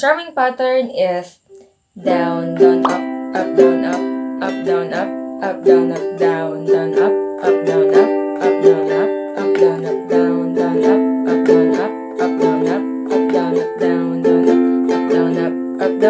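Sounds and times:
ukulele strumming chords: 2.0s - 16.0s.

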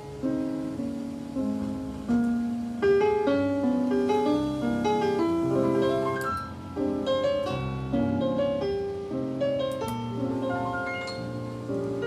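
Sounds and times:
piano music on radio: 0.0s - 12.0s.

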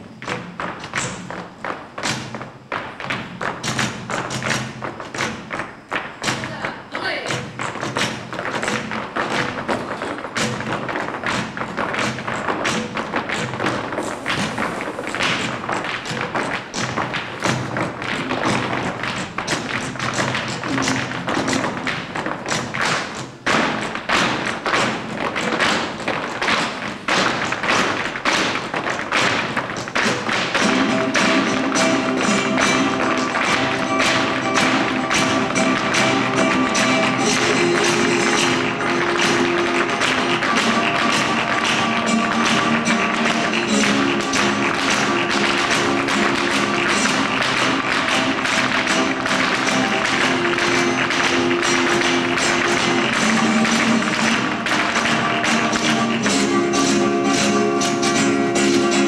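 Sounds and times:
flamenco music: 0.0s - 59.0s
percussive taps and stamps: 0.1s - 59.0s
held notes: 30.6s - 59.0s.

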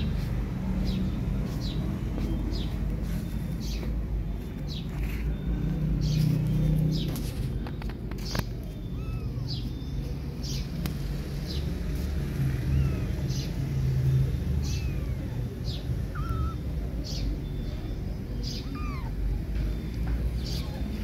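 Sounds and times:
kittens mewing: 8.8s - 9.9s, 12.3s - 21.0s.

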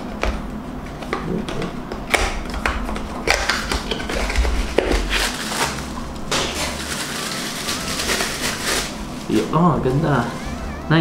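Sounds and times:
packaging crackling and scraping: 3.3s - 9.4s.

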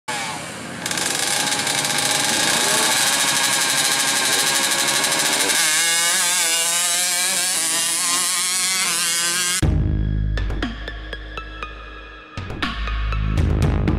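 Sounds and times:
two-stroke motorcycle engine revving: 0.1s - 9.6s.

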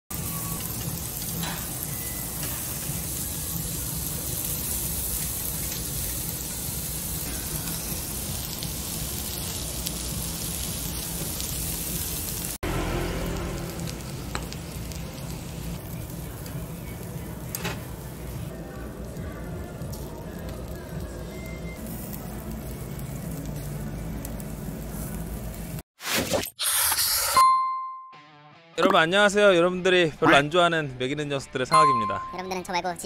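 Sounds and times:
pork sizzling on a grill: 0.1s - 25.8s.

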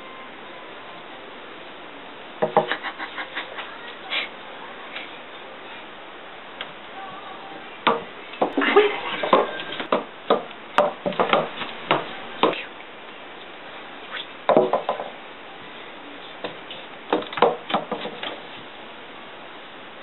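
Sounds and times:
ball knocking on wooden stairs: 2.4s - 2.7s, 9.2s - 12.6s, 14.5s - 15.2s, 16.4s - 18.4s.

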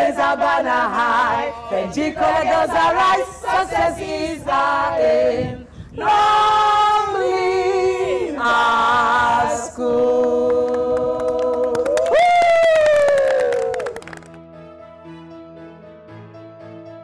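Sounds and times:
women singing a cappella: 0.0s - 11.8s.

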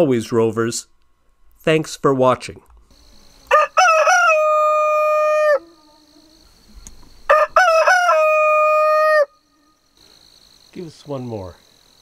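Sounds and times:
rooster crowing: 3.0s - 9.8s.

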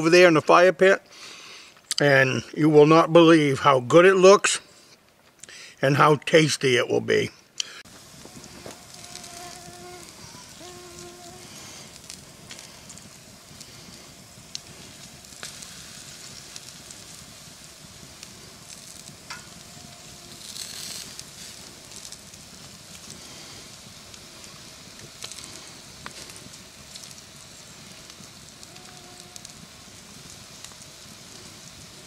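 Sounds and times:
campfire crackling and popping: 7.6s - 32.0s
meat sizzling on a grate: 7.8s - 32.0s.

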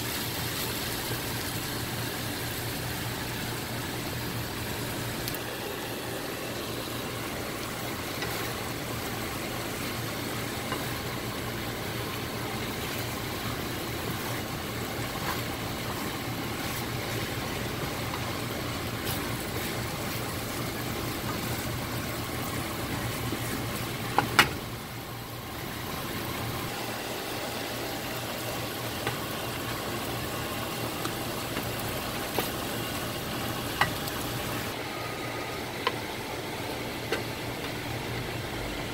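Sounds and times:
food sizzling in frying pan: 0.0s - 38.5s.

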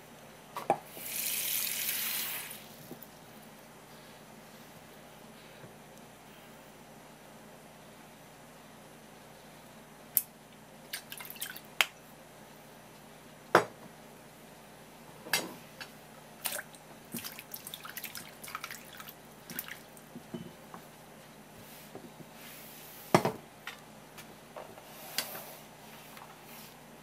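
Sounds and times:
pieces splashing into water: 10.9s - 11.7s, 16.4s - 20.0s.

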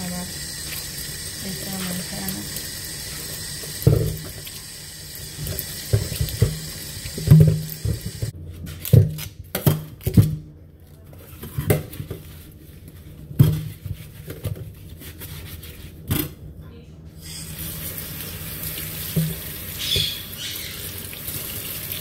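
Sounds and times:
tap water running into sink: 0.0s - 8.3s, 17.2s - 22.0s
fruit thudding in sink: 5.4s - 8.3s.

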